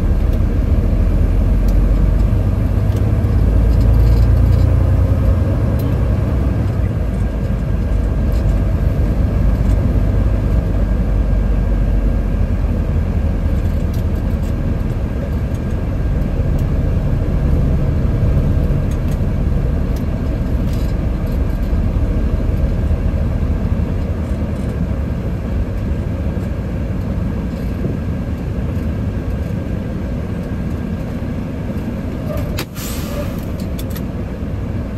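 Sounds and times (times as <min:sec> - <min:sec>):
road noise: 0:00.0 - 0:34.9
truck diesel engine rumble: 0:00.0 - 0:34.9.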